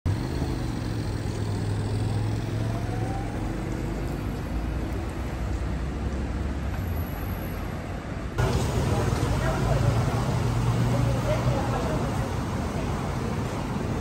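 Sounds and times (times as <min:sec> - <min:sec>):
vehicle engines running: 0:00.1 - 0:14.0
car passing: 0:08.4 - 0:14.0.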